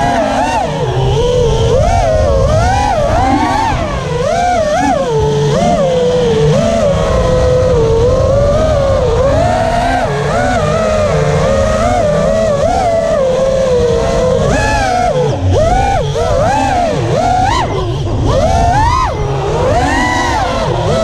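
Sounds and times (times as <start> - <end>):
drone motors whining: 0.0 - 21.0
wind on microphone: 0.0 - 21.0.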